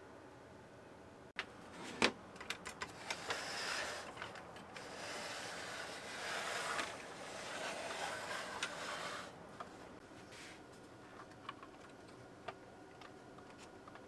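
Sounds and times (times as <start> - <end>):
plastic scraping and rubbing: 1.7 - 9.4.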